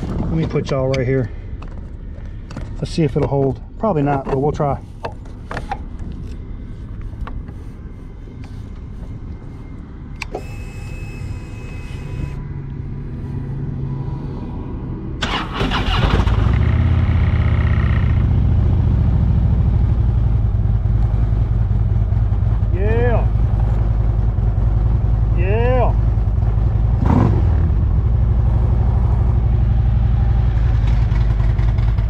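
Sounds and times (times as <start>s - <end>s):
motorcycle engine starting: 15.2s - 21.8s, 30.5s - 32.0s.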